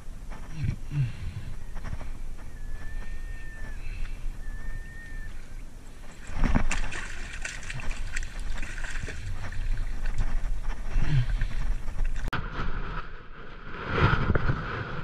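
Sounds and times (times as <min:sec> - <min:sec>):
high whistle-like tones: 0:01.6 - 0:05.6
fish splashing in water: 0:06.1 - 0:10.4.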